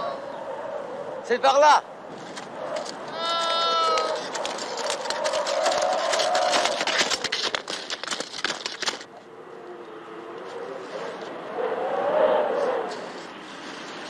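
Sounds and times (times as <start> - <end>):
wind howling: 0.0 - 14.0
snowshoes crunching on snow: 3.6 - 8.9.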